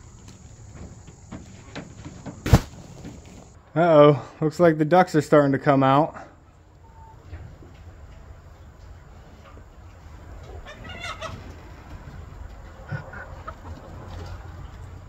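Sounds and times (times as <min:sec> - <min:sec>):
chickens clucking: 0:06.8 - 0:15.0.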